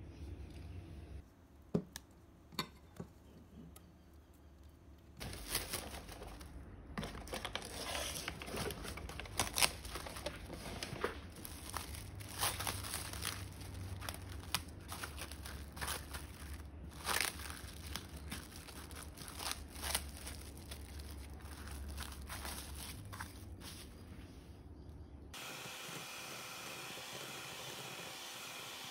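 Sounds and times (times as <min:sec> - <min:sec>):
cling film crinkling: 0:05.1 - 0:24.0.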